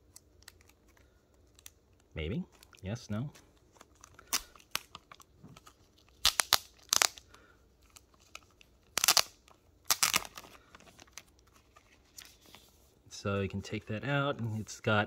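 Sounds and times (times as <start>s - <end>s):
plastic bag crinkling: 3.5s - 12.8s.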